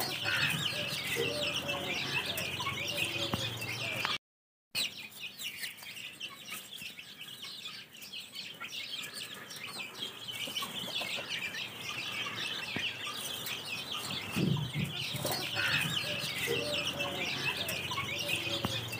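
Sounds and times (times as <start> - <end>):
chicks peeping: 0.0 - 4.2, 4.8 - 18.9
hen clucking: 0.0 - 4.2, 9.3 - 18.9.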